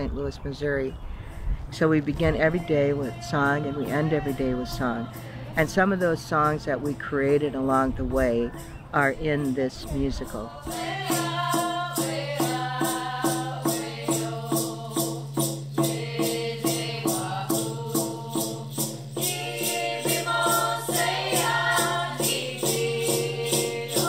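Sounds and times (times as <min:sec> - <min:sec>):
voices singing: 0:01.7 - 0:24.0
frame drum beating: 0:10.5 - 0:24.0.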